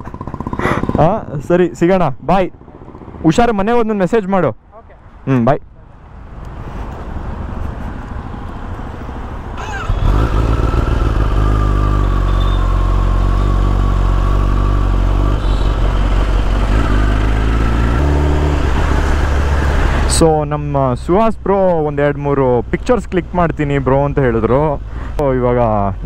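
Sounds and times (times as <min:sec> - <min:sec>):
motorcycle engine running: 0:00.0 - 0:01.4, 0:09.6 - 0:19.6.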